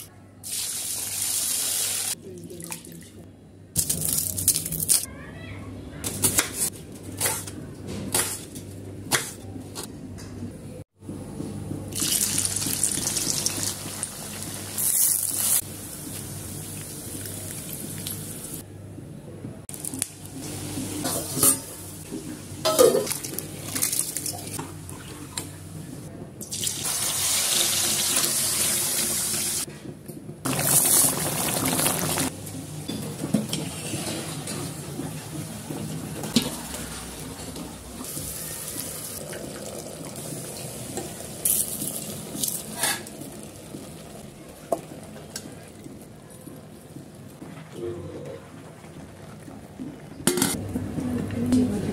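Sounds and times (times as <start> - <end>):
oil sizzling in a wok: 0.4 - 2.2, 26.5 - 29.7, 30.5 - 32.3.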